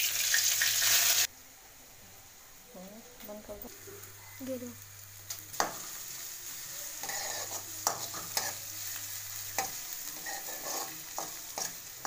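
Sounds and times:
food sizzling in hot oil: 0:00.0 - 0:01.4, 0:03.6 - 0:12.0
steel spoon scraping pan: 0:07.0 - 0:08.7, 0:09.6 - 0:11.9.

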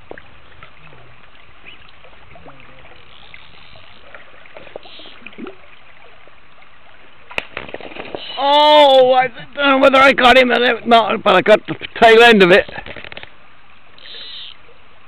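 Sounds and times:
river current rushing: 0:00.0 - 0:11.3.

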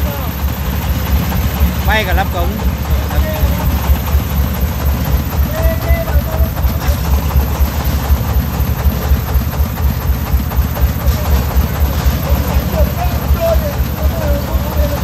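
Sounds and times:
diesel engine chugging: 0:00.0 - 0:15.0.

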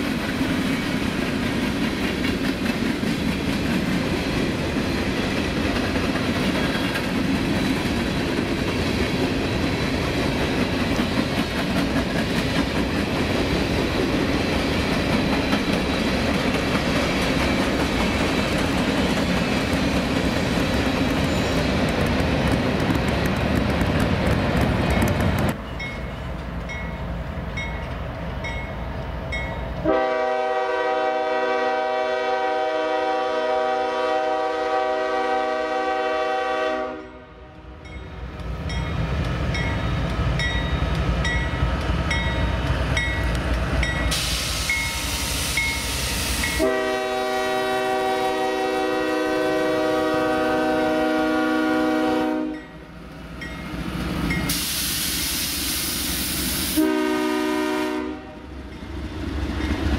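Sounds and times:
train rumble: 0:00.0 - 0:59.9
locomotive air horn blasts: 0:29.8 - 0:37.6, 0:46.2 - 0:52.7, 0:56.6 - 0:58.5.

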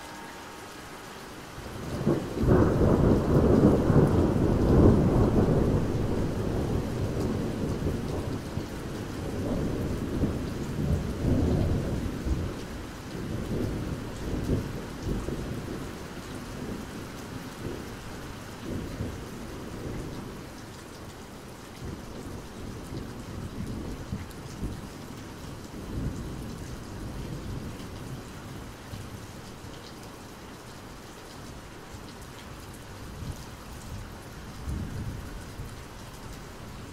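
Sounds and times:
steady rain falling: 0:00.0 - 0:36.9.

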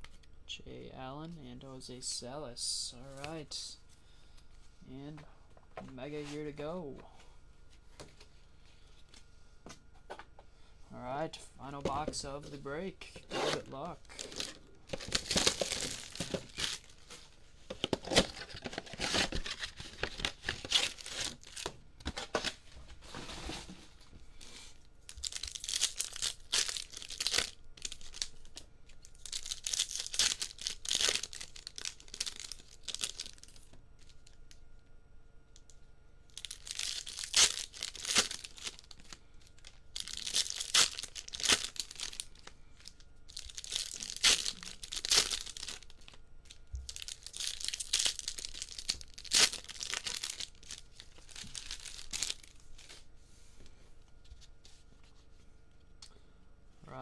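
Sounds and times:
wrappers crinkling and tearing: 0:13.2 - 0:22.6, 0:25.1 - 0:34.5, 0:36.3 - 0:53.1.

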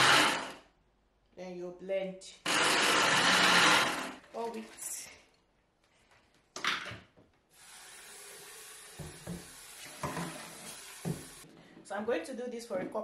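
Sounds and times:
running water hiss: 0:07.5 - 0:11.4.

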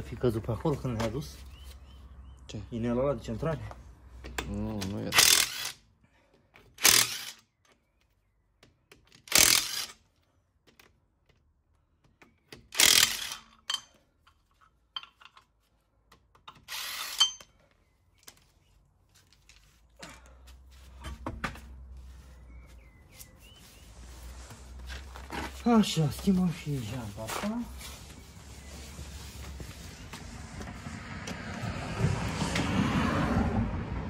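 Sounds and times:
cordless power tool spinning bolts: 0:05.1 - 0:05.8, 0:06.8 - 0:07.5, 0:09.2 - 0:10.0, 0:12.6 - 0:13.8, 0:16.5 - 0:17.4
handling noises and knocks: 0:19.2 - 0:22.0.

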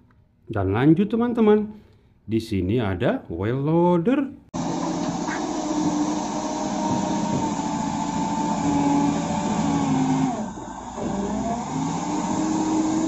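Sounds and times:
wheel loader diesel engine under load: 0:04.6 - 0:13.0.

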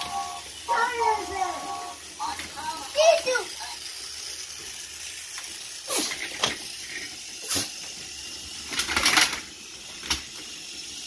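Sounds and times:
rattle of plastic clicks: 0:05.1 - 0:07.3, 0:08.4 - 0:11.0
hard plastic toy clacks: 0:08.7 - 0:10.4.

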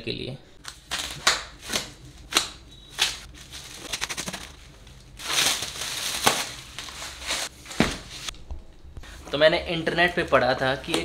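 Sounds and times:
plastic wrap crackling and crinkling: 0:02.9 - 0:08.3.

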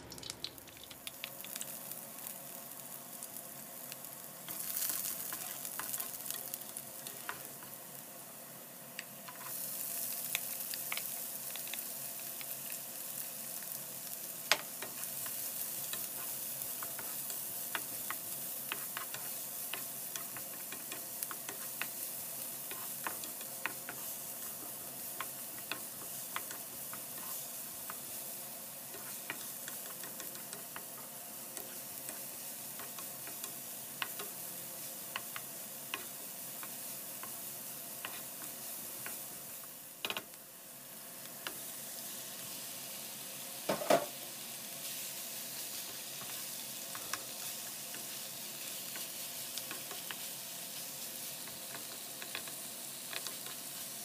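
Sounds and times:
garlic and onion sizzling in oil: 0:00.0 - 0:54.0.

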